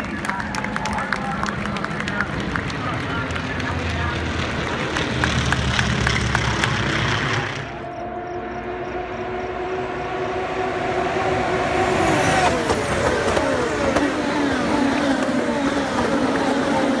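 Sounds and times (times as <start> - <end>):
crowd noise: 0.0 - 8.8
race cars passing at high revs: 0.1 - 17.0.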